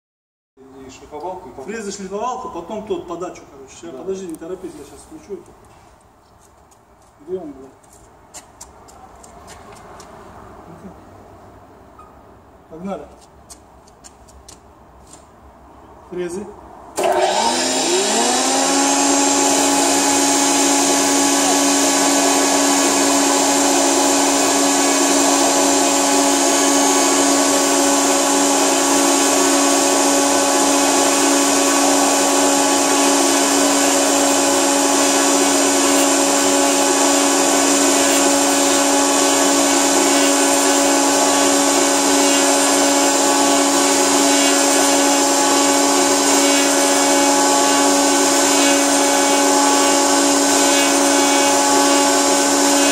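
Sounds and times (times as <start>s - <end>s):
milling machine motor whine: 17.0s - 52.9s.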